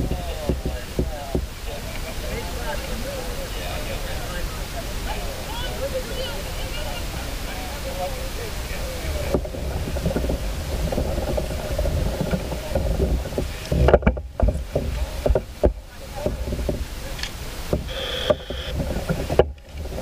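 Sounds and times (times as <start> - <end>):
sharp knocks: 0.0 - 1.5
water splashes: 0.0 - 20.0
wind rumbling on microphone: 0.0 - 20.0.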